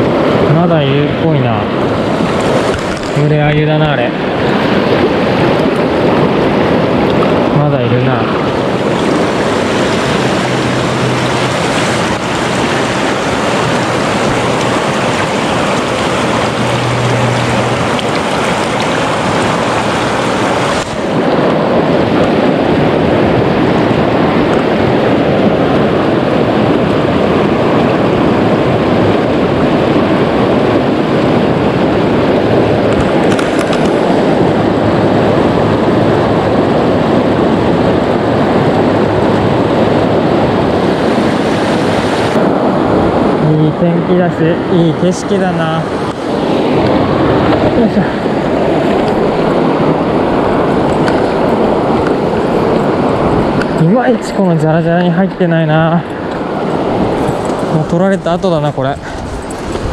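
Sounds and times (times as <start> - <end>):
river rapids roaring: 0.0 - 59.9.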